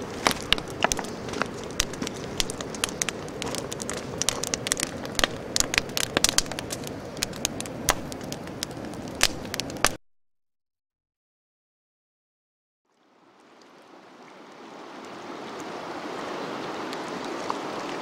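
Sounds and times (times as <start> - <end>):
campfire crackling and popping: 0.0 - 10.0.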